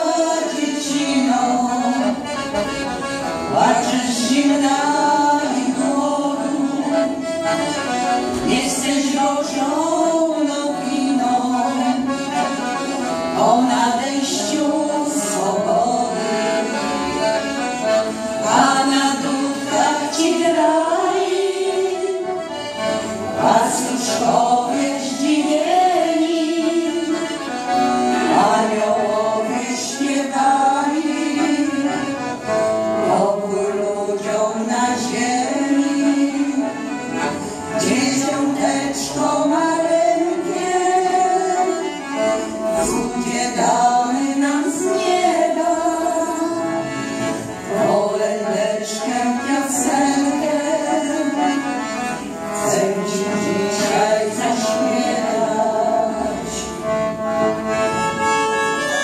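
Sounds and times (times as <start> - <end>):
women's group singing a carol: 0.0 - 57.7
piano accordion: 0.0 - 59.0.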